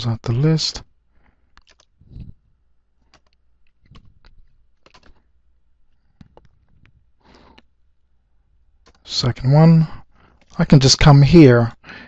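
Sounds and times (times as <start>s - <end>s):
faint keyboard typing: 1.2s - 7.7s, 8.8s - 9.2s, 10.1s - 10.7s.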